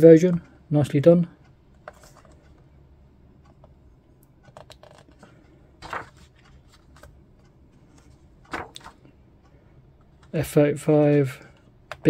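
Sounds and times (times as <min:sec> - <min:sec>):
book pages turning: 0:01.8 - 0:02.5, 0:04.4 - 0:09.0.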